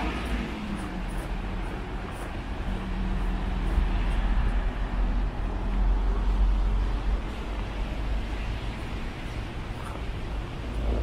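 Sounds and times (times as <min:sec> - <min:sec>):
road traffic rumble: 0:00.0 - 0:11.0.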